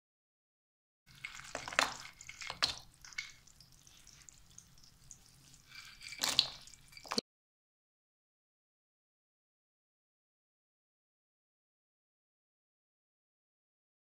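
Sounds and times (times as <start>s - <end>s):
nuts sizzling and crackling in fat: 1.1s - 7.2s.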